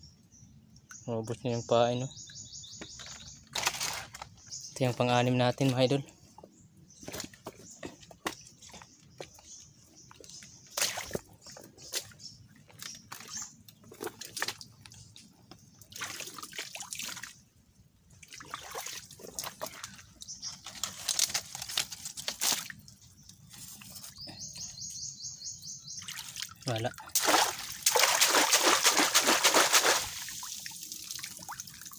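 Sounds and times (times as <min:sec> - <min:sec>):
branches knocking and rustling: 0:02.8 - 0:04.5, 0:19.2 - 0:22.8
footsteps squelching through mud: 0:07.0 - 0:17.4, 0:18.2 - 0:24.2, 0:26.0 - 0:30.4
water splashing: 0:15.8 - 0:17.4, 0:18.2 - 0:20.0, 0:26.0 - 0:31.9.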